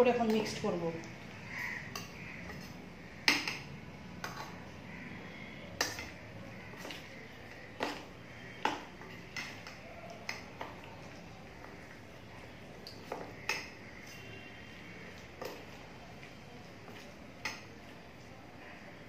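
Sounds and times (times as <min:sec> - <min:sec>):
spoon scraping bowl: 0:01.9 - 0:02.8.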